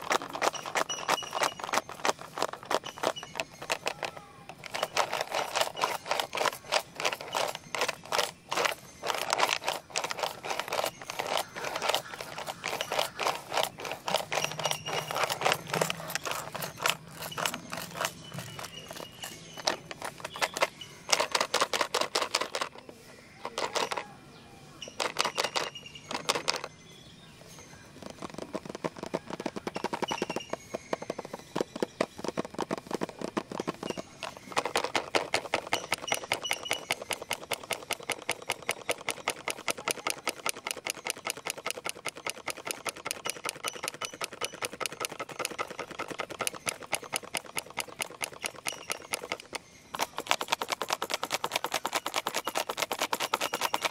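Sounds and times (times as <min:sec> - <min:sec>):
fingernails tapping on plastic box: 0:28.1 - 0:53.9.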